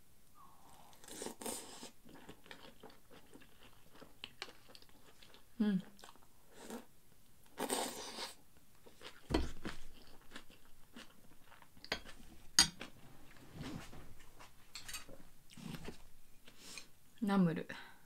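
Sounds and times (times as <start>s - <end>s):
person chewing: 0.8s - 13.4s
spoon and bowl against dishes: 11.8s - 12.9s, 14.7s - 15.2s.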